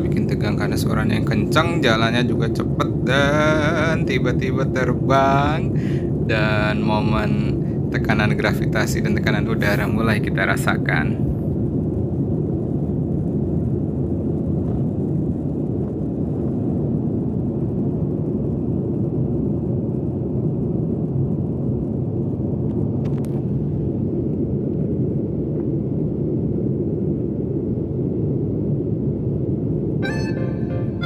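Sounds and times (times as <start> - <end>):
jet engines rumbling in cabin: 0.0 - 31.0.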